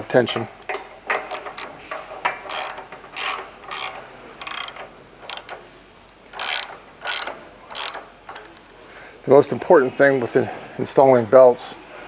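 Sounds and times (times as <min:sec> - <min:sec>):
ratchet wrench clicking: 0:00.6 - 0:01.7, 0:02.4 - 0:05.6, 0:06.3 - 0:08.7.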